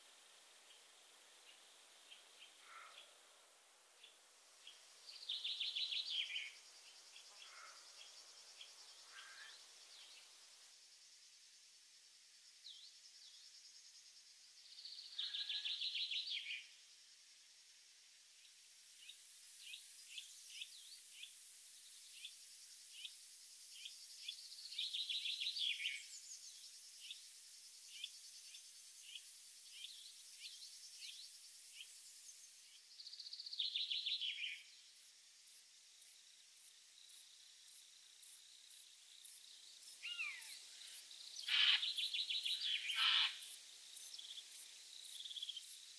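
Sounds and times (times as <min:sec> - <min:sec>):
insects buzzing and chirping: 0:00.0 - 0:45.9
songbird trilling: 0:41.4 - 0:43.4.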